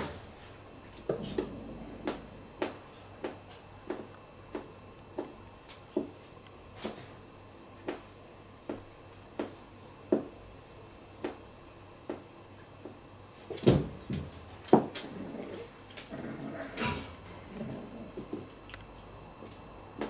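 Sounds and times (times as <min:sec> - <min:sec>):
cats growling and crying: 0:15.0 - 0:18.4.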